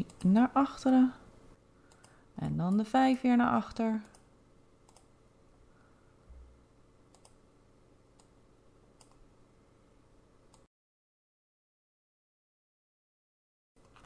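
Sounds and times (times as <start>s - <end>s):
faint mouse clicks: 1.9s - 2.2s, 4.0s - 4.3s, 4.9s - 5.1s, 7.1s - 7.4s, 9.0s - 9.2s.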